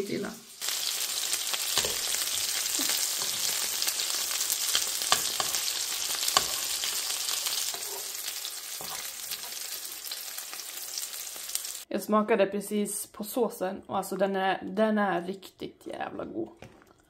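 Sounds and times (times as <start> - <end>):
food sizzling in a pan: 0.0 - 11.9.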